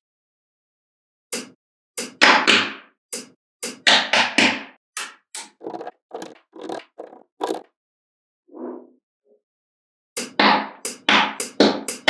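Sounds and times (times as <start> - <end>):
magnetic balls clicking: 5.6 - 7.6
magnetic balls rattling: 5.6 - 7.6.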